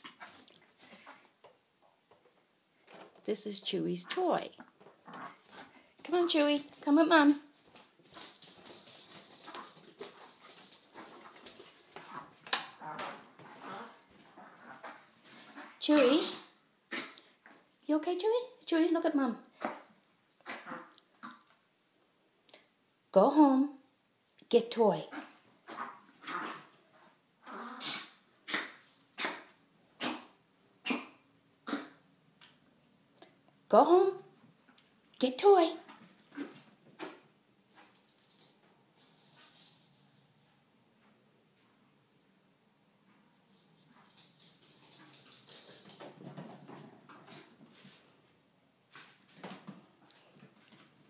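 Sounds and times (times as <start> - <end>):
small dog yapping: 20.4 - 21.4, 25.1 - 26.7, 27.4 - 32.0.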